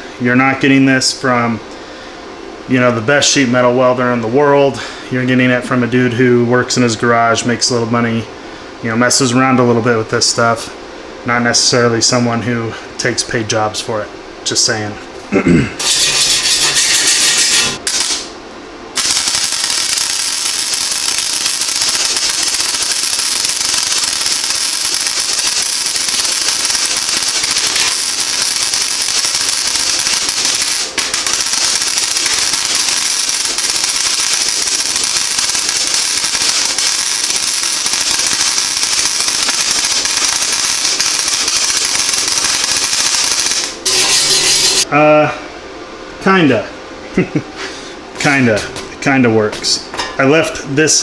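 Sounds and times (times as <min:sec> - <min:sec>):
welding arc crackling and spattering: 0:15.8 - 0:44.9.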